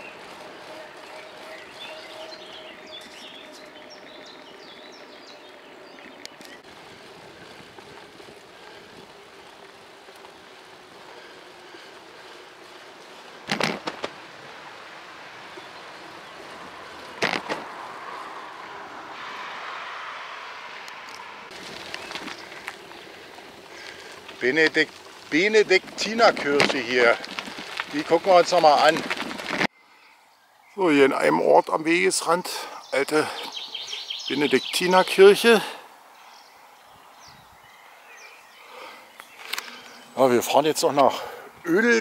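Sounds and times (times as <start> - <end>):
bicycle tyres rolling on pavement: 0.0 - 42.0
birds chirping: 0.0 - 42.0
bicycle jolting clatter: 21.5 - 29.7.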